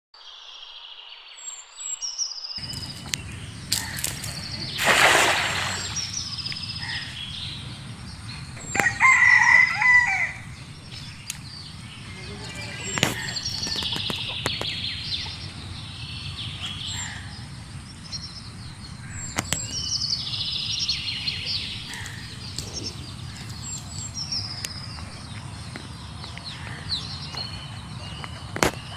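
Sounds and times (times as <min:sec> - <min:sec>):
birdsong: 0:00.2 - 0:28.9
net splashing onto water: 0:03.7 - 0:06.2
rooster crowing: 0:08.6 - 0:10.6.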